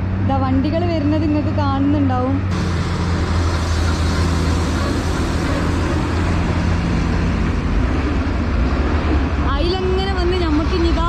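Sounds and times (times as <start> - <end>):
lorry diesel engine humming: 0.0 - 11.0
road noise: 0.0 - 11.0.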